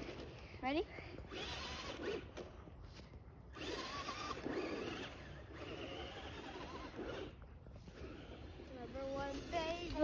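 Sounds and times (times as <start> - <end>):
rc car motor whining: 1.3 - 2.4, 3.5 - 10.0.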